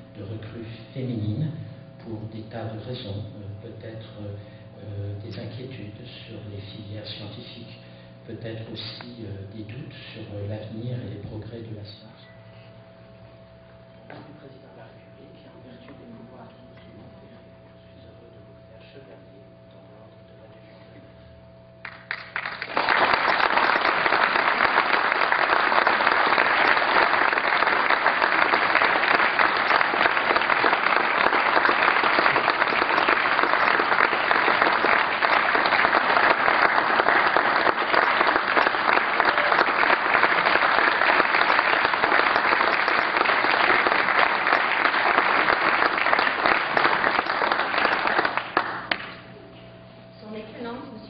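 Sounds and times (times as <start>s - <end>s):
audience applauding: 21.8s - 49.2s.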